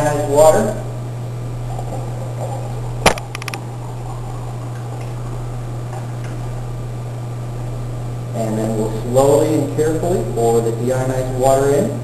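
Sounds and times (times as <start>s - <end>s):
steady low hum: 0.0s - 12.0s
lab equipment clicks: 3.0s - 3.6s.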